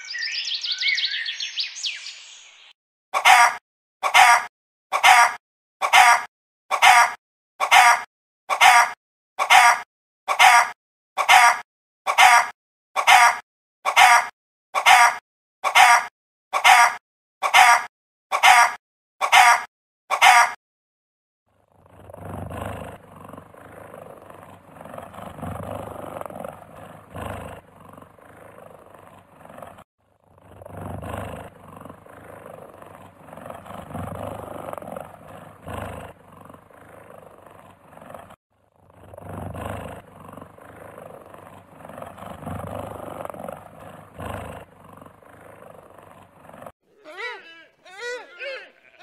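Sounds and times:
cheetah purring: 21.6s - 47.3s.

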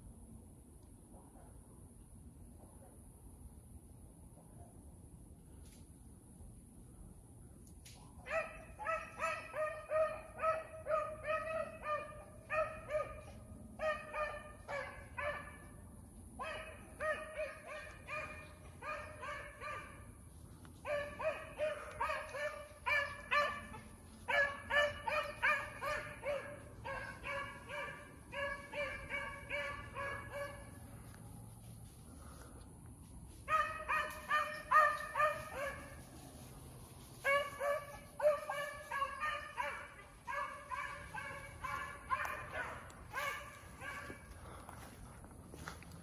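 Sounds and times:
hounds baying chop barks: 20.8s - 30.7s, 37.3s - 44.4s.

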